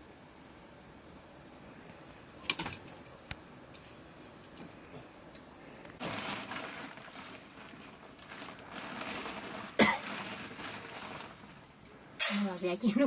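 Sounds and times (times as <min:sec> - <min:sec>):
dry rustling: 0:06.0 - 0:11.7.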